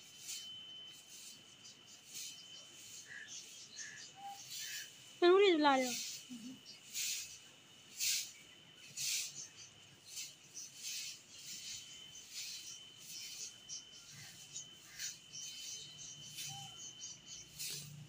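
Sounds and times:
broom sweeping cement floor: 0.0 - 18.0
thin steady high tone: 0.0 - 18.0.

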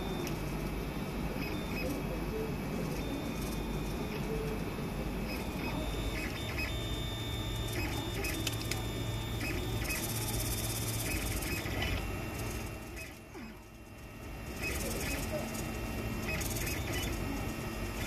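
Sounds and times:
stepper motors whining: 1.4 - 18.0.

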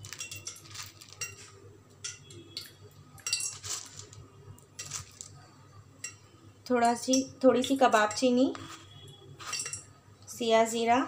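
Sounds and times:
metal spoon clinking on utensils: 0.0 - 5.4, 6.0 - 8.4, 9.4 - 10.0.

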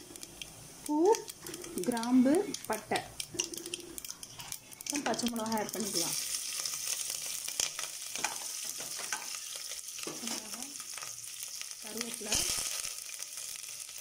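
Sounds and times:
spices sizzling in hot oil: 0.0 - 14.0.

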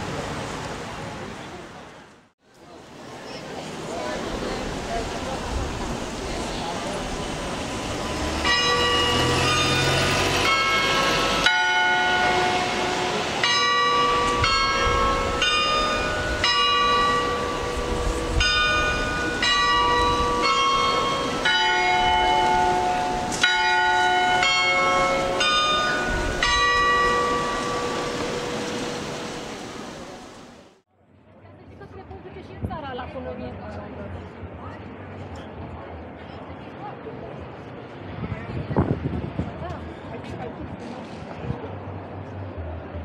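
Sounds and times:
church bells ringing: 8.0 - 30.0.

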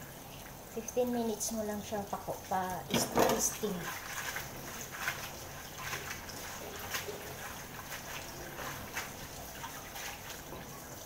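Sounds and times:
tap water running into sink: 0.0 - 11.0
water splashing: 2.4 - 11.0.

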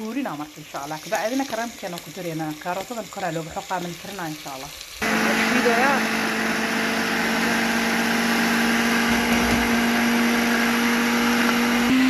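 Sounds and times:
electric blender running: 5.0 - 12.0.

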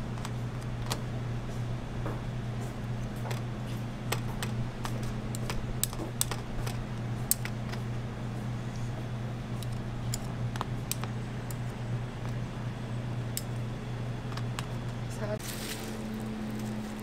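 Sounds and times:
utensils clicking and tapping: 2.0 - 7.9, 8.8 - 12.4.

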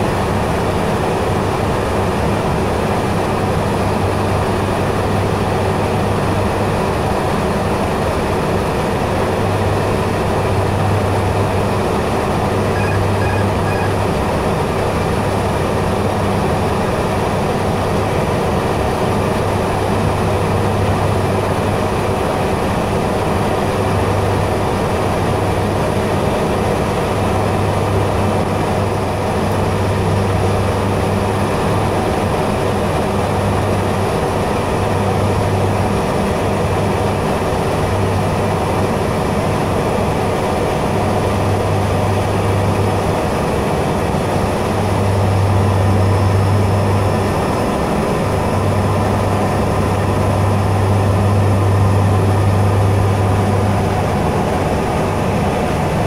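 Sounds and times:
turboprop engines droning: 0.0 - 56.0
faint short beeps: 12.7 - 14.0.

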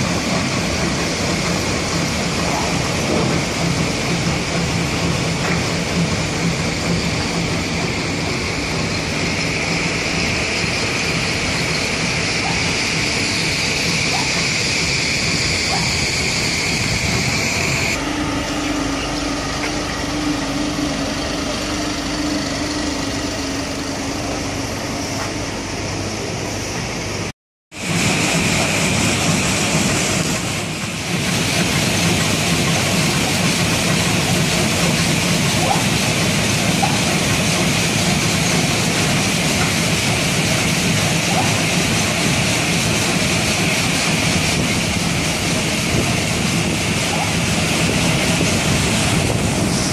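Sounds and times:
steady hum: 0.0 - 27.3.

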